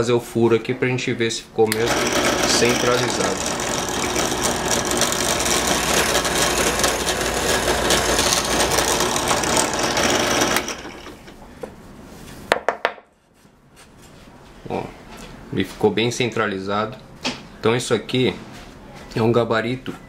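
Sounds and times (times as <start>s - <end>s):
drill press boring through wood: 1.7s - 11.4s.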